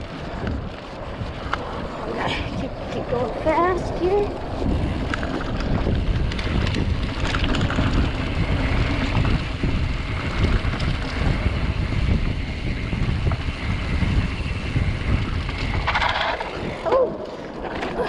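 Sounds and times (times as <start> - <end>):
bike rattling over bumps: 0.0 - 18.0
tyres rumbling over dirt: 0.0 - 18.0
wind buffeting microphone: 0.0 - 18.0.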